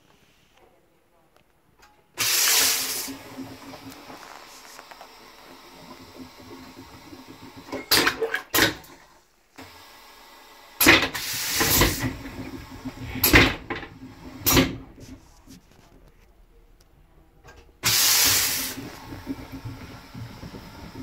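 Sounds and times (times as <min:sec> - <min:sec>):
loud rush of suction: 0:02.2 - 0:05.5
vacuum toilet flushing: 0:02.2 - 0:15.5, 0:17.5 - 0:21.0.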